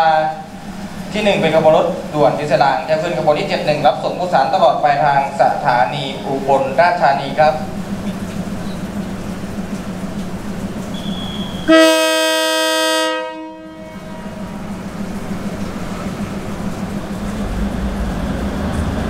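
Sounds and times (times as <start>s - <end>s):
diesel engine hum: 0.0s - 11.7s, 13.8s - 19.0s
train air horn blast: 10.9s - 14.7s.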